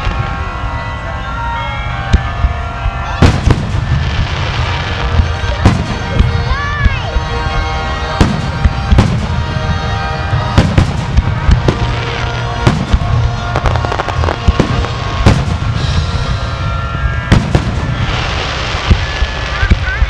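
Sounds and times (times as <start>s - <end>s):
music playing: 0.0s - 20.0s
fireworks bursting: 2.0s - 20.0s.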